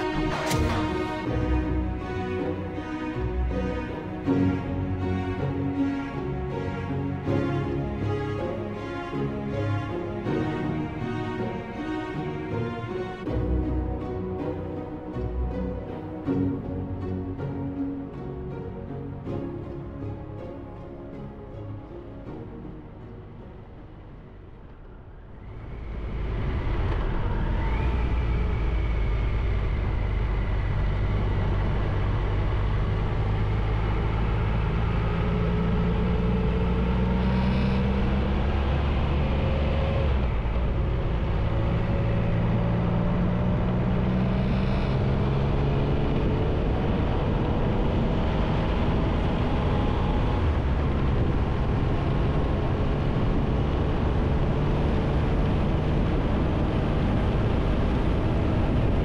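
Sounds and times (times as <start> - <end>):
motorcycle engine accelerating: 25.6 - 59.0.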